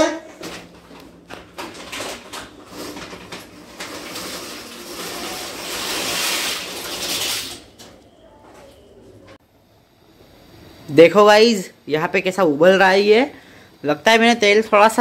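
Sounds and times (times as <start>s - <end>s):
plastic packet rustling: 0.4s - 7.6s
dry pasta pouring into pot: 2.7s - 7.6s.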